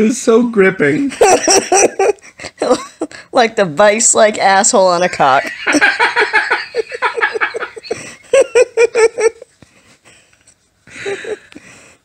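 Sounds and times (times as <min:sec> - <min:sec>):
man laughing hard: 0:01.1 - 0:02.8, 0:05.4 - 0:09.5.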